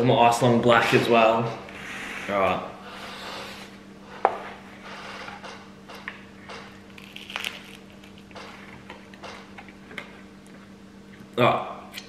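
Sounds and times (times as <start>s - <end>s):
crunch of toasted bread: 6.9s - 8.4s.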